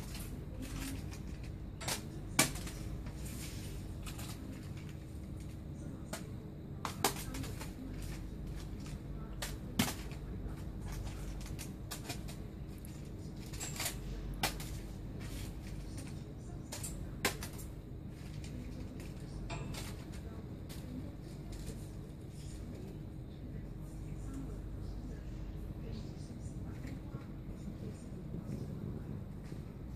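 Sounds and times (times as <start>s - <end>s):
faint steady hum: 0.0s - 29.9s.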